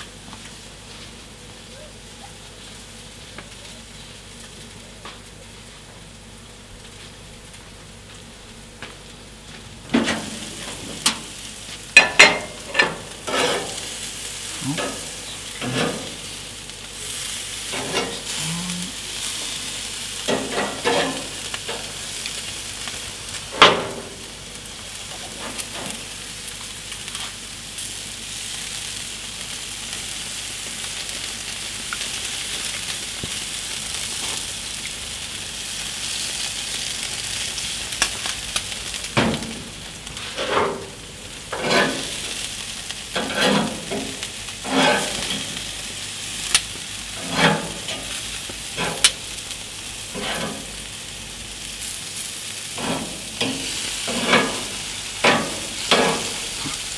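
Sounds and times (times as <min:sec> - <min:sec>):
meat sizzling on a grill: 0:00.0 - 0:56.9
metal tongs clacking on grates: 0:12.0 - 0:13.8, 0:14.7 - 0:16.2, 0:17.7 - 0:18.3, 0:20.3 - 0:21.9, 0:41.5 - 0:42.1, 0:43.2 - 0:45.6, 0:47.2 - 0:48.2, 0:48.8 - 0:49.2, 0:50.1 - 0:50.7, 0:52.8 - 0:56.9.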